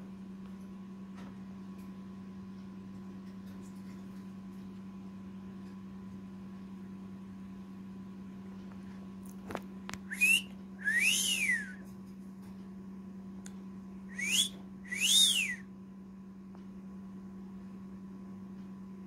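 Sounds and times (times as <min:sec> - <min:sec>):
low hum: 0:10.0 - 0:11.9
cockatiel whistling: 0:10.1 - 0:11.8, 0:14.1 - 0:15.6.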